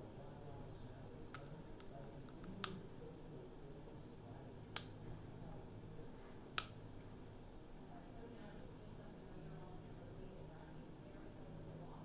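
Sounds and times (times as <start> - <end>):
faint sharp clicks: 4.7 - 5.0, 6.5 - 6.8.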